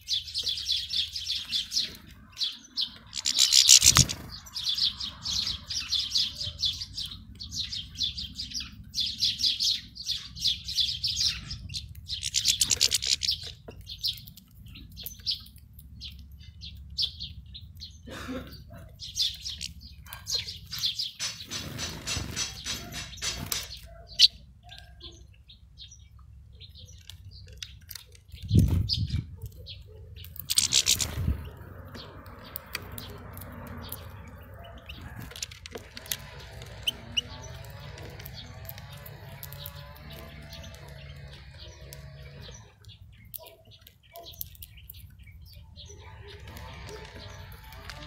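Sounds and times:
finches twittering: 0.1s - 14.2s, 30.2s - 44.8s
sharp clicks: 3.1s - 4.3s, 12.1s - 14.0s, 30.3s - 31.3s.

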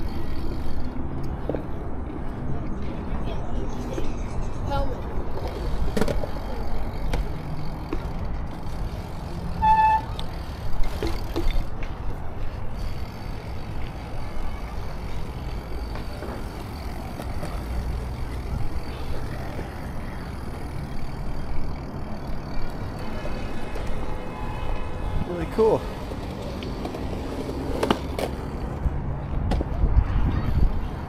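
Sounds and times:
wind and rolling tyres rumble: 0.0s - 31.0s
short squeal: 9.6s - 10.2s.

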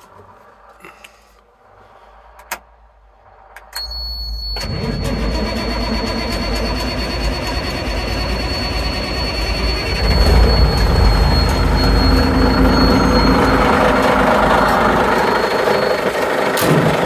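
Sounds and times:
steady high-pitched tone: 3.2s - 16.6s
diesel engine cranking and running: 4.6s - 17.0s.

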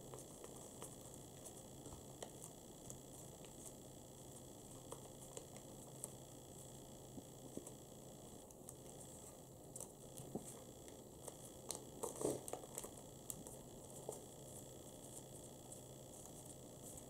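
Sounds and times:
paper crinkling and crackling: 8.5s - 17.0s.

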